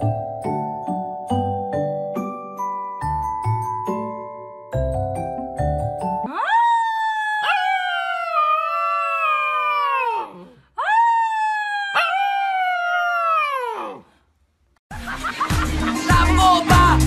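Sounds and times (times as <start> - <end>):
puppy howling: 6.3 - 14.0.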